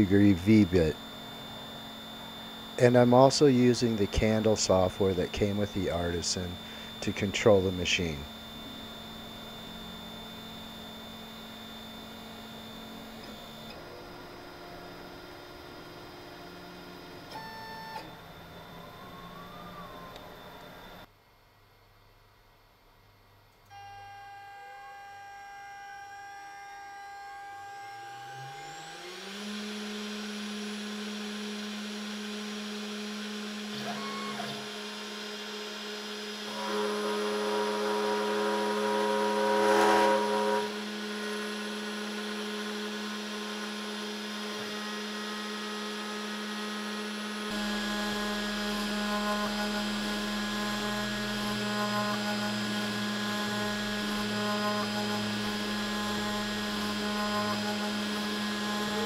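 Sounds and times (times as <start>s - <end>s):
router spindle running: 0.0s - 21.1s, 23.8s - 59.0s
bit engraving wood: 1.7s - 18.0s, 23.8s - 59.0s.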